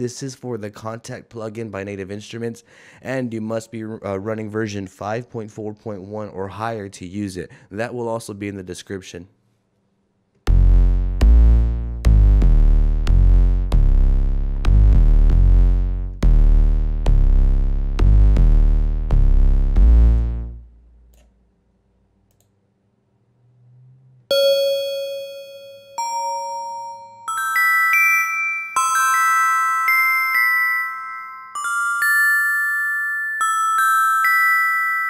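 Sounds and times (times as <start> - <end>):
deep booming bass notes: 10.5 - 21.0
ringing bell-like synth notes: 24.3 - 35.0.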